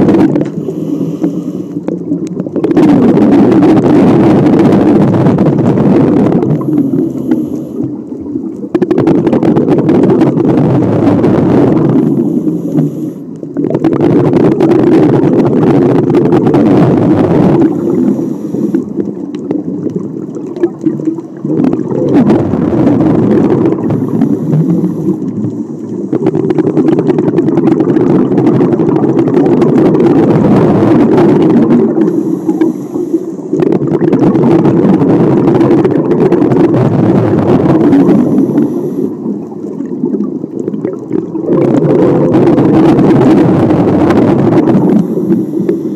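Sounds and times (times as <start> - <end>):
bubbling exhalations: 0.0 - 45.9
short quiet inhalations: 0.5 - 1.8, 6.8 - 7.9, 12.1 - 13.3, 18.0 - 18.9, 32.1 - 33.5, 38.2 - 39.2, 45.0 - 45.9.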